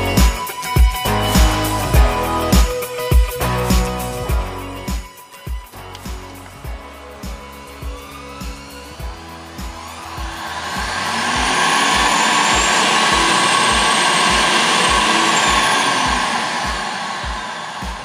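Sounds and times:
music with kick-drum beat: 0.0s - 18.0s
blower machine rushing: 5.9s - 18.0s.

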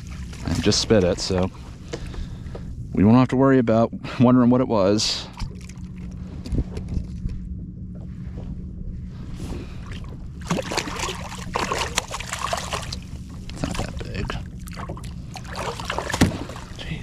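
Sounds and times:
steady low hum: 0.0s - 17.0s
fish thrashing water in net: 10.4s - 14.0s, 14.6s - 16.8s.

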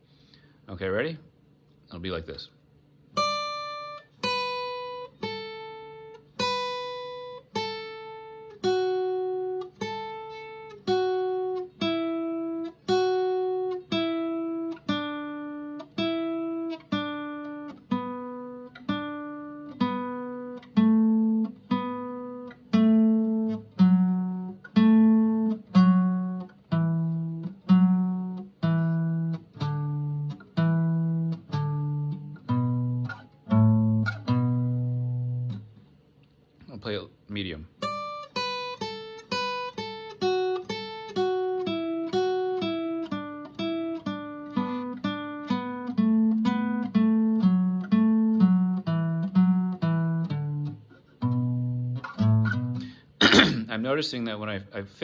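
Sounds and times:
acoustic guitar notes picked slowly: 3.1s - 36.0s, 37.8s - 53.8s.

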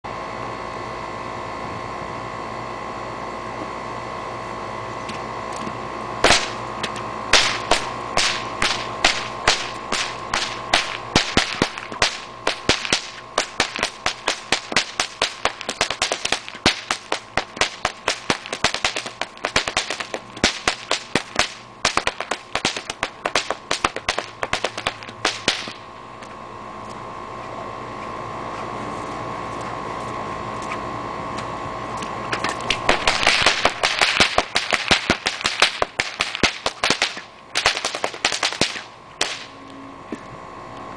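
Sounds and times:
whips cracking: 6.2s - 25.8s, 32.3s - 39.5s.

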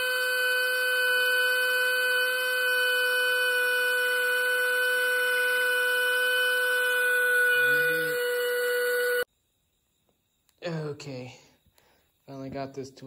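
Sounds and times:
power drill whining: 0.0s - 9.3s.

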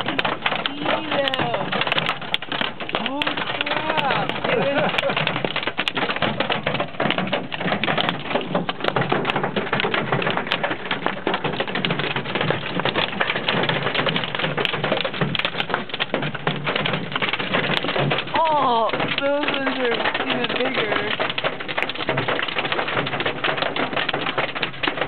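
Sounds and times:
hail clattering on car: 0.0s - 25.0s.

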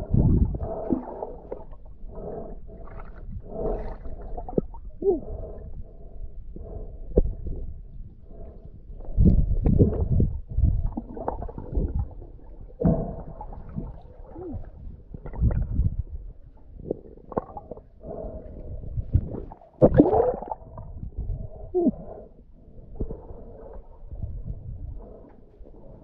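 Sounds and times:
muffled underwater water gurgling: 0.0s - 26.0s.

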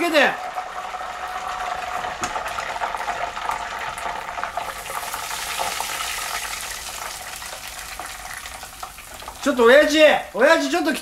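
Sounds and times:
oil bubbling and sizzling: 0.0s - 11.0s.

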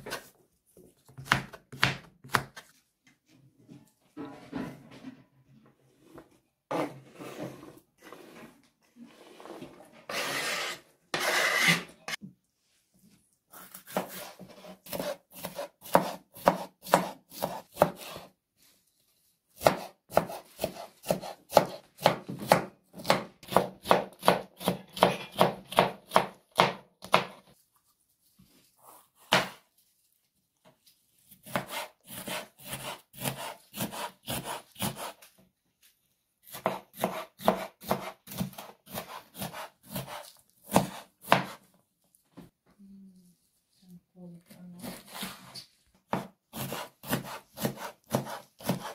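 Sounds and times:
scraping into metal bowl: 6.7s - 12.2s.

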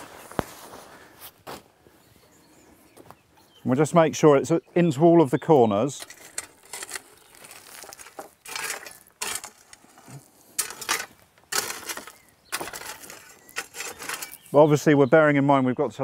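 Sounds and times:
stones crunching and clinking: 5.9s - 14.5s
shovel scraping crushed stone: 5.9s - 14.6s.

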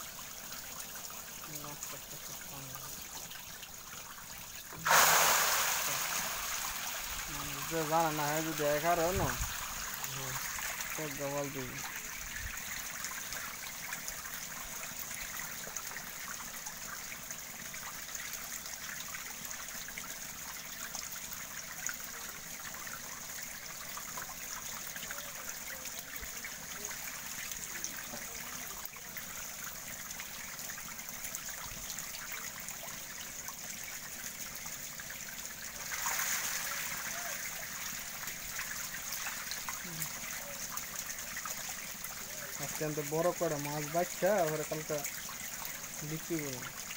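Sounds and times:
shallow water splashing and trickling: 0.0s - 46.9s.

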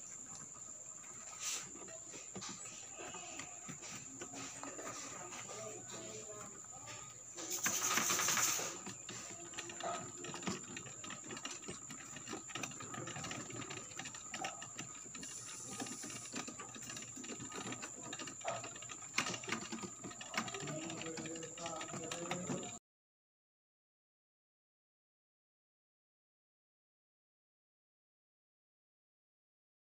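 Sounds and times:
rustle: 0.0s - 3.5s
rabbit chewing food: 0.0s - 22.8s.

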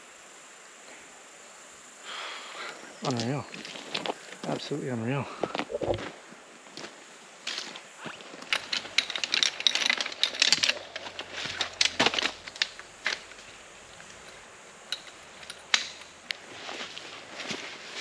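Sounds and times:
footsteps crunching on forest floor: 3.0s - 8.9s, 16.4s - 18.0s.

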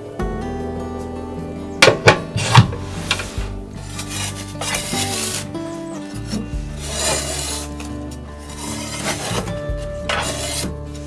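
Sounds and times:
soft background music: 0.0s - 11.0s
metal scoop scraping ash: 2.3s - 11.0s.

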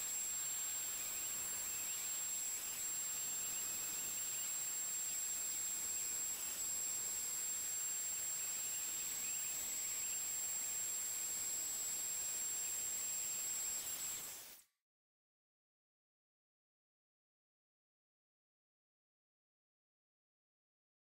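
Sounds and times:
router spindle high-pitched whine: 0.0s - 14.6s
steady hiss: 0.0s - 14.8s.

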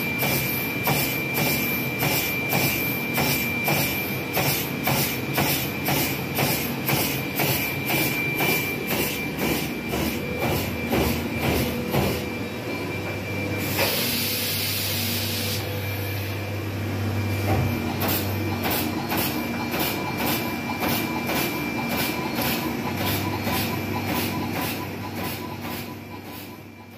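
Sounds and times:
machinery hum with high whine: 0.0s - 26.9s
hiss of air: 13.6s - 15.7s.

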